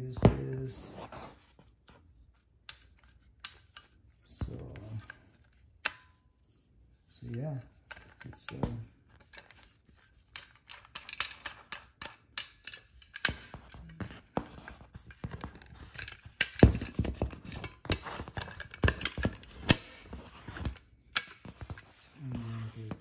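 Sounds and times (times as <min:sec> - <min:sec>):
folding shovel rattling and clacking: 0:07.2 - 0:22.9.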